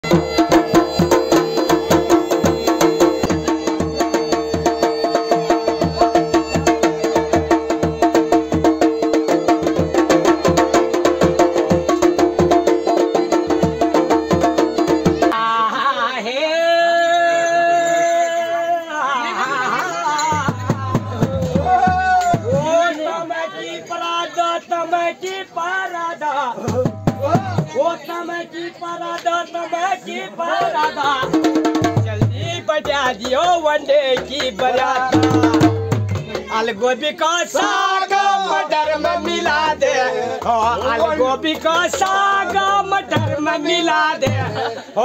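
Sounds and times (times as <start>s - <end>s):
bagpipes drone and melody: 0.0s - 10.6s
fast drumming: 0.0s - 15.4s, 20.2s - 22.7s, 26.6s - 27.8s, 30.8s - 36.8s, 38.8s - 44.6s.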